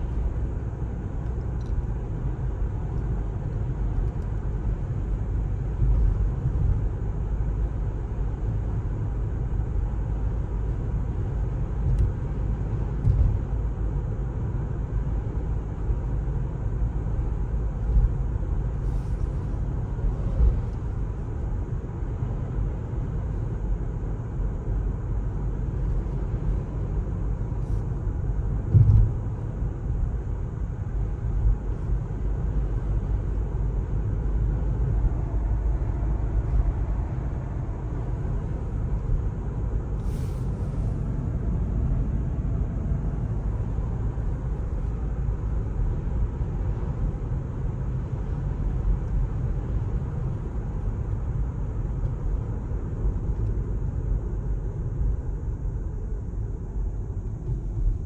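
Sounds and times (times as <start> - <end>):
tyre and road noise: 17.0 - 54.9
short thump: 28.7 - 29.2.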